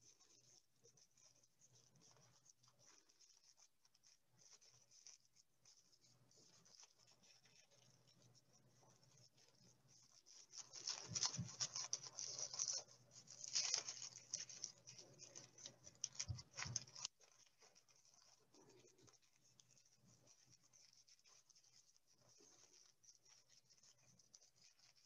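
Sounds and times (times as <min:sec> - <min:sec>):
tissue paper crinkling: 0:08.8 - 0:25.0.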